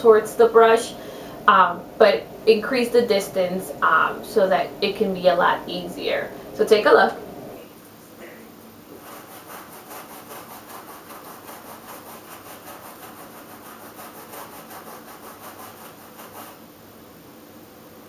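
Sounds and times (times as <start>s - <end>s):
brush scrubbing carpet: 8.9s - 16.6s.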